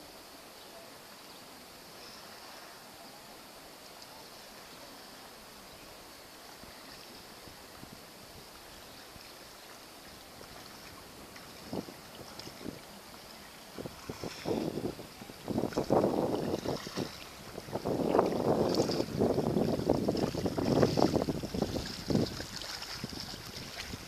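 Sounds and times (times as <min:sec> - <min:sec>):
small waves lapping: 0:00.0 - 0:24.0
water splash: 0:09.1 - 0:24.0.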